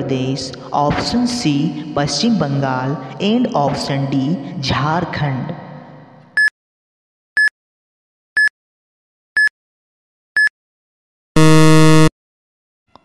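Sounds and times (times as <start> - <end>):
low buzzer: 11.4 - 12.1
short high electronic beeps: 11.4 - 12.1.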